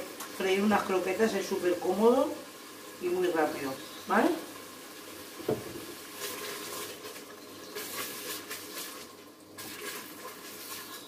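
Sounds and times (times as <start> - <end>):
sizzling and bubbling in hot oil: 0.0 - 11.0.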